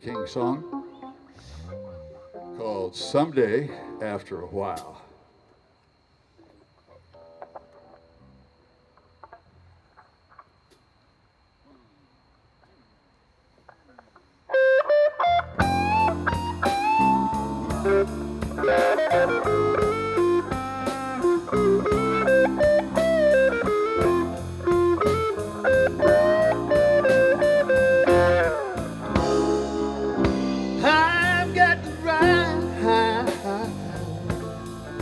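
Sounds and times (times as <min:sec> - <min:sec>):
keyboard: 0:00.0 - 0:05.0, 0:14.6 - 0:35.0
bass: 0:01.4 - 0:05.0, 0:15.2 - 0:35.0
electric guitar: 0:06.4 - 0:10.8, 0:13.6 - 0:35.0
lead guitar with bent notes: 0:14.5 - 0:35.0
drums: 0:15.4 - 0:35.0.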